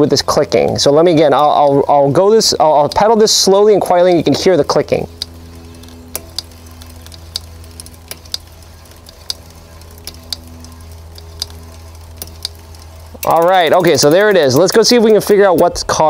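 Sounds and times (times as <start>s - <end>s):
bicycle brake rotor clicking: 0.0s - 16.0s
low hum of spinning wheel: 0.0s - 16.0s.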